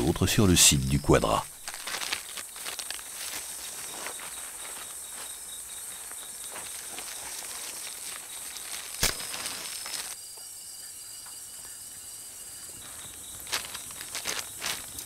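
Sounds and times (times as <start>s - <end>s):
night insects hissing: 0.0s - 15.0s
plastic bags rustling: 1.5s - 5.4s, 6.0s - 10.2s, 12.8s - 15.0s.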